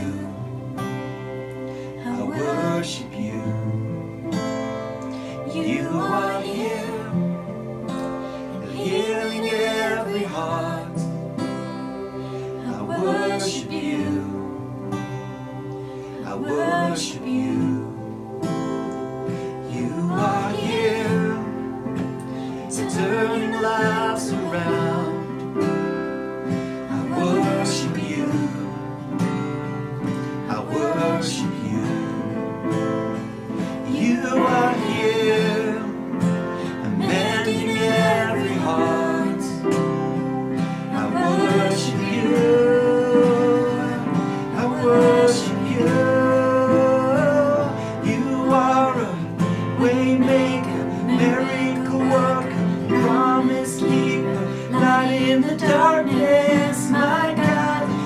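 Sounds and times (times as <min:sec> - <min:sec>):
man singing: 0:00.0 - 0:00.5, 0:02.0 - 0:04.0, 0:05.3 - 0:07.3, 0:08.6 - 0:11.1, 0:12.6 - 0:14.6, 0:16.2 - 0:18.0, 0:19.6 - 0:21.6, 0:22.6 - 0:25.4, 0:26.8 - 0:28.8, 0:30.4 - 0:32.4, 0:33.9 - 0:36.0, 0:36.6 - 0:39.6, 0:40.9 - 0:58.0
keyboard: 0:00.0 - 0:58.0
strummed acoustic guitar: 0:00.0 - 0:58.0.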